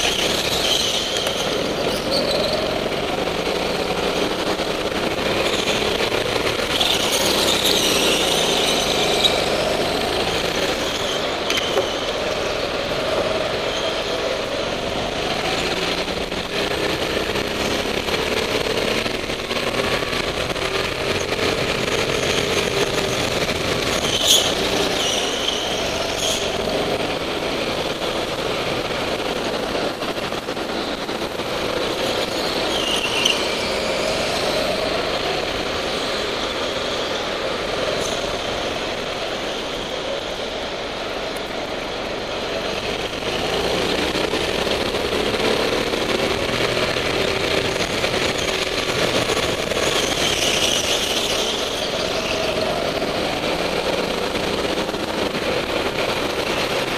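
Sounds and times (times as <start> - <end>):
tyre squeals: 0.0 - 2.8, 5.4 - 12.7, 32.3 - 34.2
go-kart engine running hard: 0.0 - 56.9.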